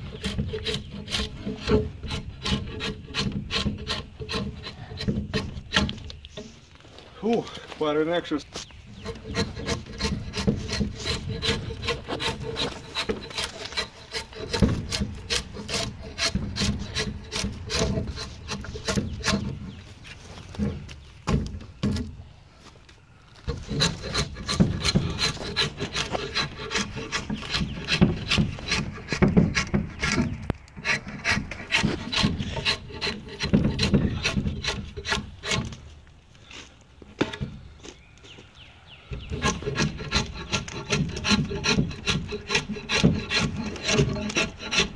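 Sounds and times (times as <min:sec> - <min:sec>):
drawknife scraping wood: 0:08.9 - 0:22.1, 0:23.5 - 0:35.8, 0:39.2 - 0:44.9.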